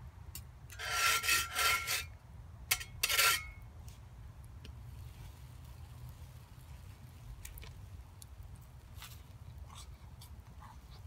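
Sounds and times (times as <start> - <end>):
skillet scraping: 0.7 - 3.6.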